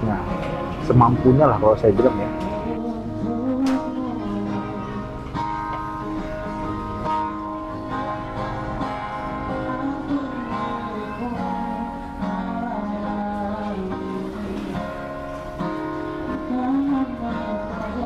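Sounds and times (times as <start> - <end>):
acoustic guitar strumming: 0.0 - 18.0
person singing: 2.0 - 6.8, 9.2 - 18.0.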